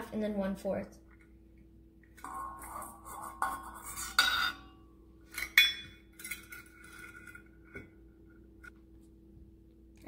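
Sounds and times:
metal cups clinking and scraping: 2.2s - 8.0s.

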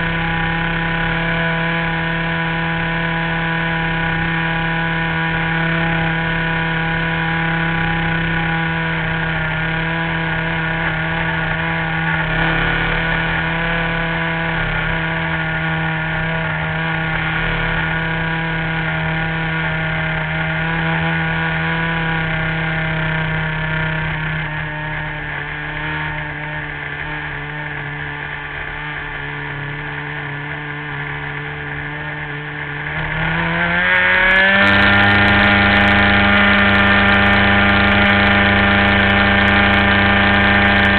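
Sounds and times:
model airplane engine running: 0.0s - 40.9s.

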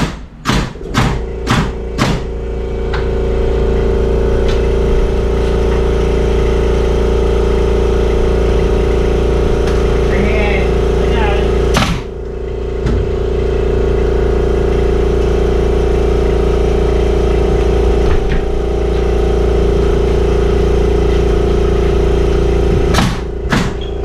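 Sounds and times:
sharp knocks: 0.0s - 2.3s, 11.7s - 12.1s, 22.8s - 23.8s
motor humming: 0.7s - 24.0s.

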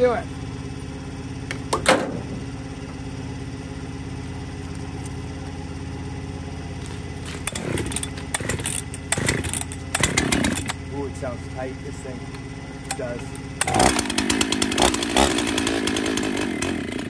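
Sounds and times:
engine hum: 0.0s - 17.0s
chainsaw recoil starter pulled: 6.8s - 10.8s, 12.9s - 17.0s.

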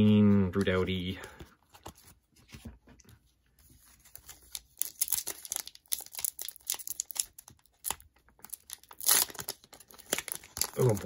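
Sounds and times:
foil wrapper crinkling: 4.0s - 11.0s.

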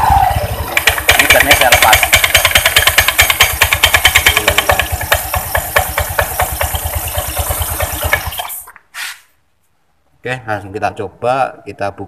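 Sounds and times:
scooter engine idling: 0.0s - 8.7s
fast clattering knocks: 0.7s - 8.6s.

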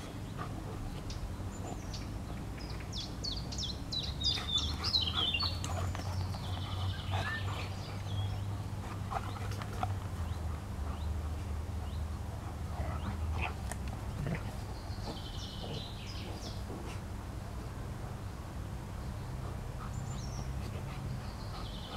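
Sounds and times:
birds chirping: 0.0s - 21.9s
dogs play-wrestling: 4.2s - 17.1s.

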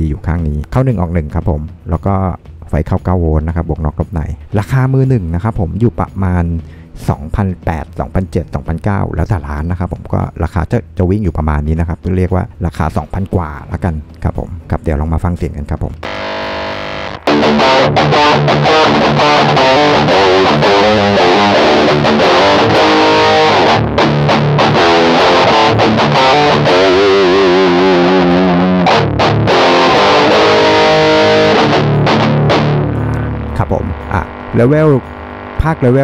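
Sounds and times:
distorted electric guitar riff: 16.0s - 36.0s.

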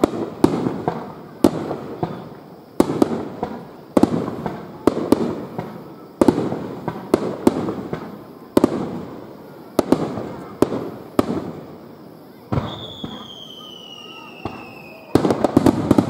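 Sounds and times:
firework shells bursting: 12.4s - 16.0s.

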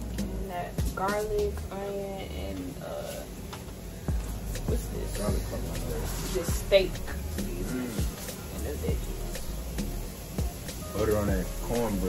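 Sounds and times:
hip-hop music: 0.0s - 2.3s, 4.1s - 12.0s
deep bass notes: 4.1s - 12.0s.

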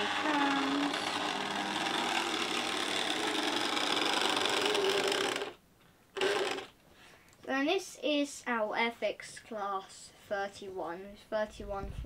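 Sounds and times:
model train motor whirring: 0.0s - 5.6s, 6.2s - 6.7s.

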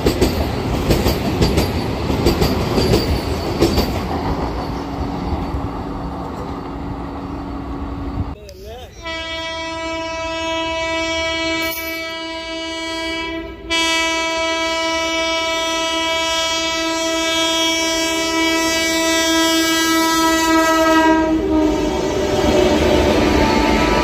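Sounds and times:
train rumble and wheel noise: 0.0s - 24.0s
train horn blast: 9.0s - 24.0s.

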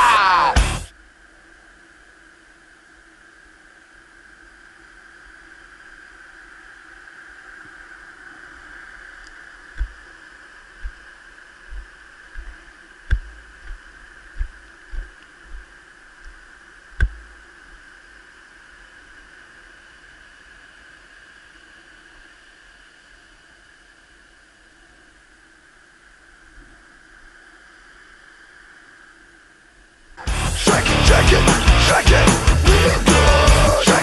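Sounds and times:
high-pitched hum: 7.9s - 18.3s, 30.2s - 34.0s
dull thumps: 9.7s - 10.1s, 10.8s - 16.4s, 17.0s - 17.4s.

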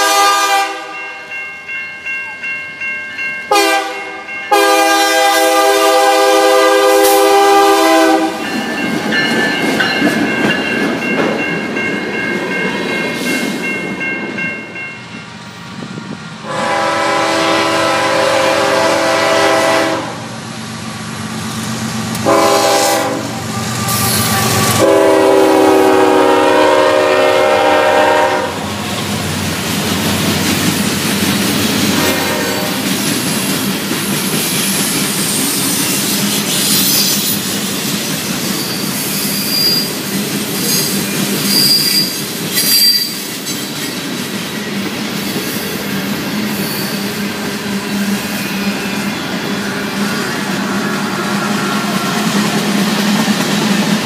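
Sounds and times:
locomotive air horn blasts: 0.0s - 1.0s, 3.5s - 8.5s, 16.4s - 20.3s, 22.2s - 28.7s, 32.0s - 32.8s
crossing bells ringing: 0.0s - 5.6s, 8.1s - 15.6s.

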